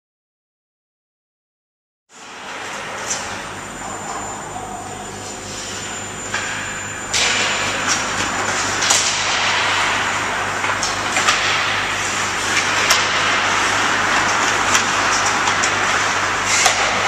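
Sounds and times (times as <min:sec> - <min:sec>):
steady low hum: 0:02.1 - 0:17.0
sticks and puck clacking: 0:16.5 - 0:17.0.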